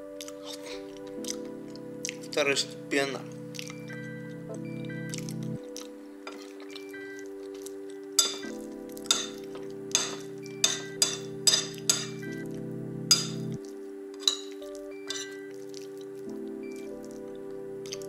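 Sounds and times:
background music with held notes: 0:00.0 - 0:18.0
metal spoon clinking on a plate: 0:08.2 - 0:08.5, 0:09.1 - 0:09.4, 0:10.0 - 0:12.2, 0:13.1 - 0:13.4, 0:14.2 - 0:15.4.

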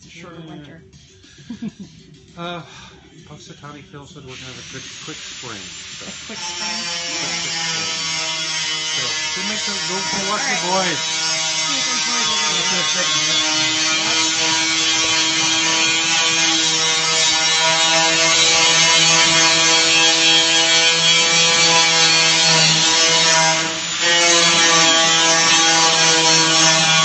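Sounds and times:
hiss: 0:04.2 - 0:27.0
power tool buzzing whine: 0:04.3 - 0:27.0.

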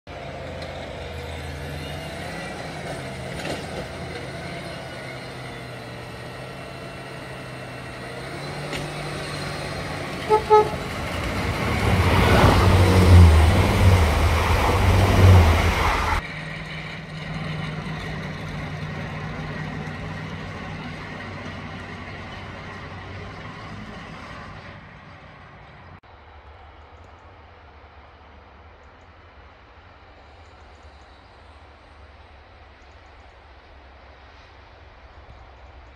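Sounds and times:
train engine hum: 0:00.1 - 0:35.9
loud low diesel rumble: 0:04.7 - 0:26.0
two-tone train horn: 0:10.1 - 0:11.2.

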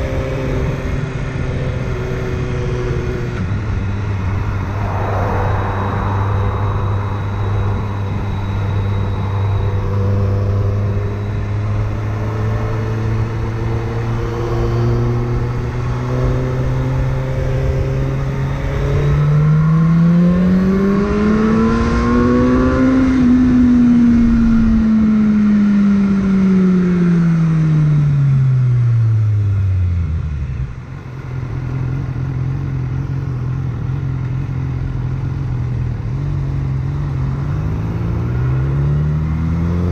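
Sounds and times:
wind noise: 0:00.0 - 0:25.2
motorcycle engine revving: 0:00.0 - 0:39.9.

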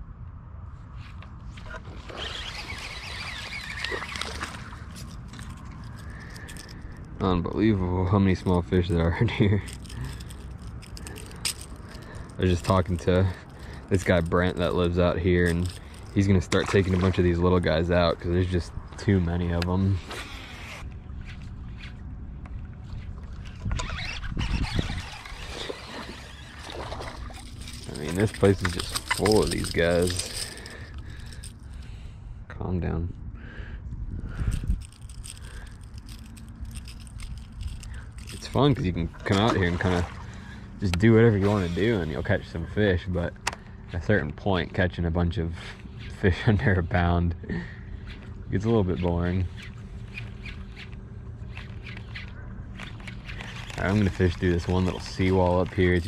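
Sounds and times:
steady low rumble: 0:04.6 - 0:20.0.

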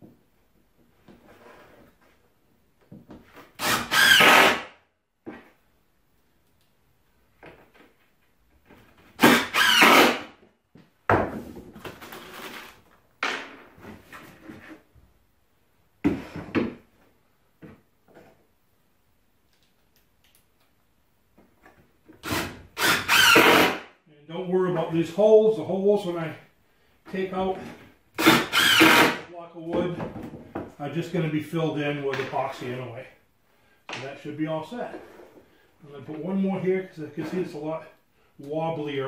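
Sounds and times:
cordless drill running: 0:22.2 - 0:23.8, 0:28.2 - 0:29.2.

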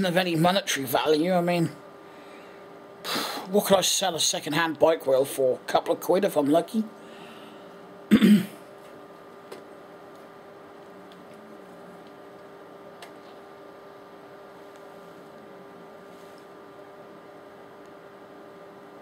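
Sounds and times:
faint electrical hum: 0:00.0 - 0:19.0
man clearing his throat: 0:08.1 - 0:08.6.

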